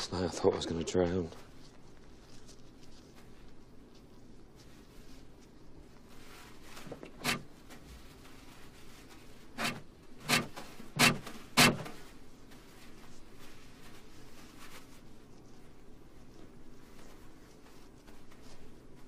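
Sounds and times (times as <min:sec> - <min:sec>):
paper towels yanked from dispenser: 0:06.8 - 0:07.8, 0:09.6 - 0:12.0.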